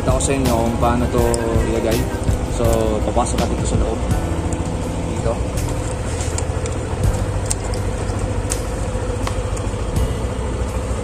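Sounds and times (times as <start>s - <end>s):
scooter engine idling: 0.0s - 11.0s.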